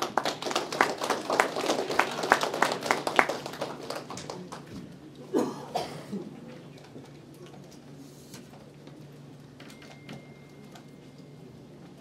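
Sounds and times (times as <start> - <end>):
people clapping: 0.0 - 4.9.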